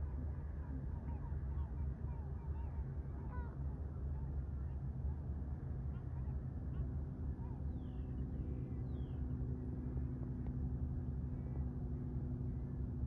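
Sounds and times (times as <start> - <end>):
steady low rumble: 0.0 - 13.0.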